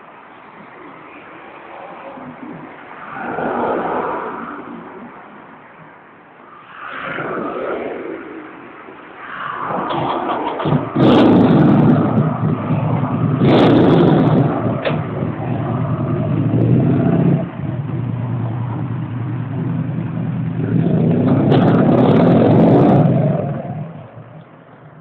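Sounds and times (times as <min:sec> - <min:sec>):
motorcycle engine revving: 0:09.9 - 0:24.3.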